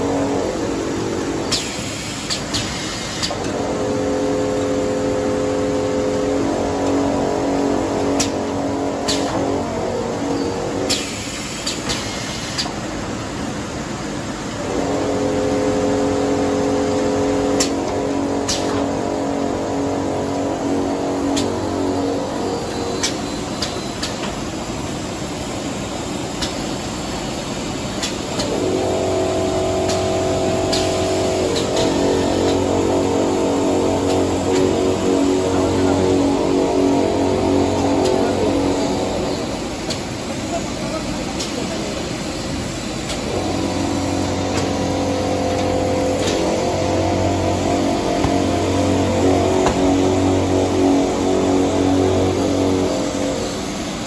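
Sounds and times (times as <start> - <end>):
steady humming tone: 0.0 - 2.5, 3.1 - 11.8, 13.1 - 25.0, 28.0 - 54.0
conveyor machinery noise: 0.0 - 54.0
machine whirring with clicks: 1.2 - 3.7, 8.1 - 9.5, 10.8 - 12.8, 17.5 - 18.9, 22.8 - 24.4, 26.4 - 26.7, 27.9 - 28.8, 29.8 - 32.7, 34.0 - 34.8, 43.0 - 46.6
motor hum: 43.2 - 53.8.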